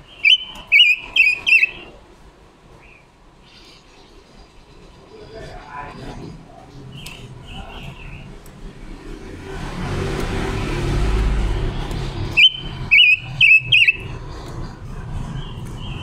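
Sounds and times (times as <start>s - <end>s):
bird whistling with warble: 0.1s - 1.9s, 12.3s - 14.1s
passing vehicle rumble: 5.3s - 16.0s.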